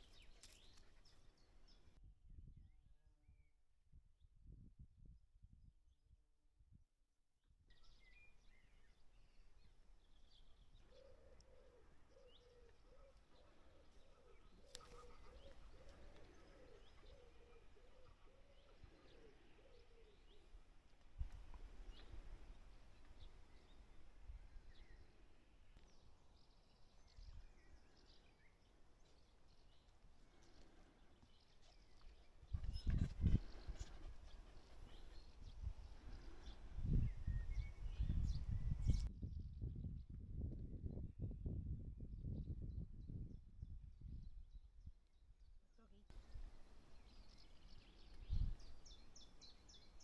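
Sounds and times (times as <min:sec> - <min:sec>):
small birds chirping: 0:00.0 - 0:02.0, 0:07.7 - 0:39.1, 0:45.7 - 0:50.0
pigeon cooing: 0:10.9 - 0:20.3.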